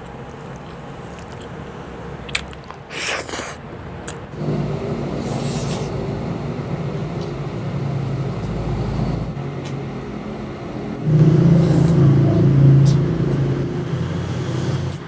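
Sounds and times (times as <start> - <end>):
low mechanical hum: 3.6 - 15.0.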